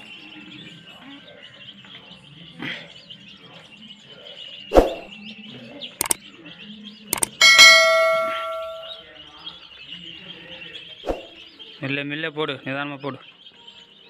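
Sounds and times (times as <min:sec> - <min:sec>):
baby chicks peeping: 0:00.0 - 0:14.0
sharp clicks: 0:06.0 - 0:06.2, 0:07.1 - 0:07.7
bell ding: 0:07.2 - 0:09.0.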